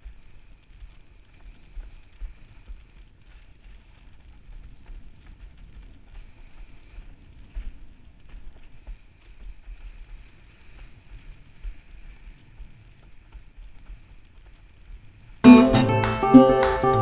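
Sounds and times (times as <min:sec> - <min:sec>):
strummed acoustic guitar music: 0:15.4 - 0:17.0.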